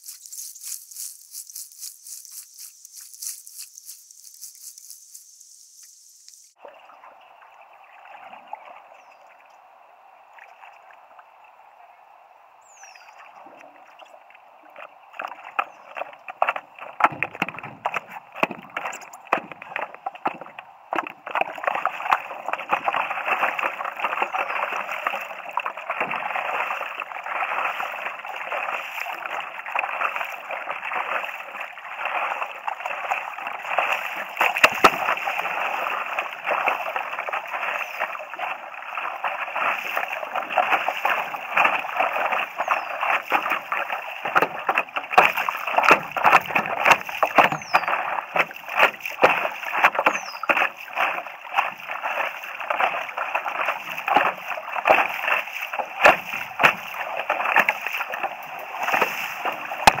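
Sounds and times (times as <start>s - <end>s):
river water splashing against board: 13.1s - 60.0s.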